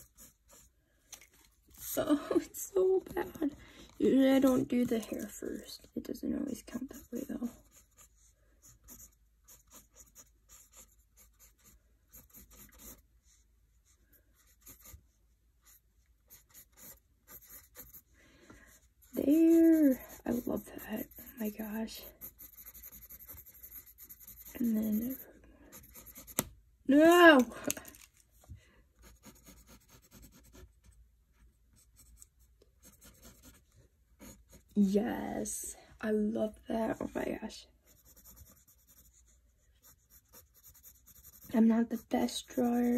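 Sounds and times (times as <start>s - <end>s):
pencil scratching on paper: 0.0s - 0.7s, 4.0s - 5.9s, 6.5s - 18.1s, 18.7s - 26.5s, 29.0s - 34.8s, 36.8s - 42.9s.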